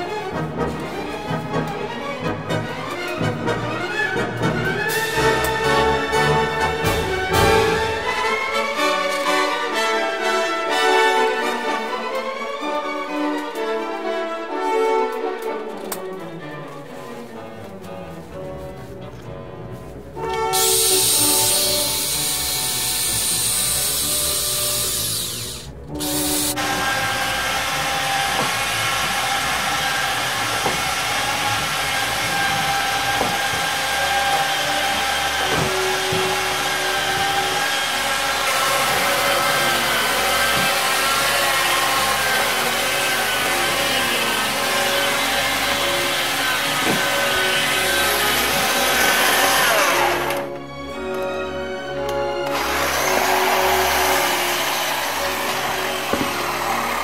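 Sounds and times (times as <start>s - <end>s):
electric pulling tool whining: 20.5s - 51.4s, 52.0s - 57.0s.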